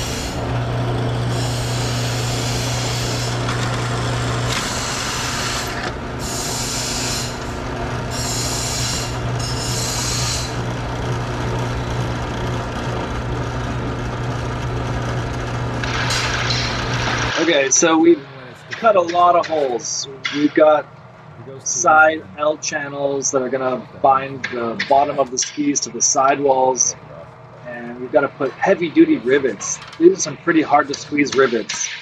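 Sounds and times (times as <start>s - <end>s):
drill bit cutting metal: 0.0s - 11.0s
drill press motor humming: 0.0s - 30.3s.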